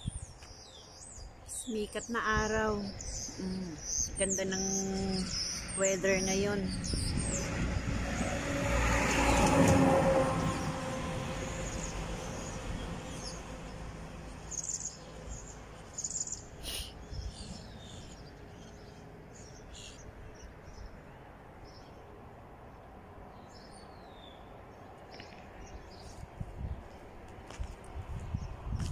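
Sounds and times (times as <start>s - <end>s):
birds chirping: 0.0s - 8.5s, 11.4s - 22.1s
vehicle passing on road: 5.2s - 28.9s.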